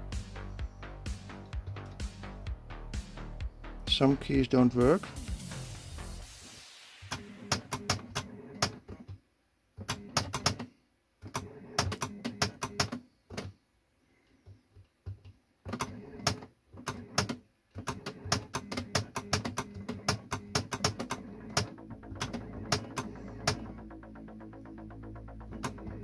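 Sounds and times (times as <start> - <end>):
low hum: 21.2 - 26.0.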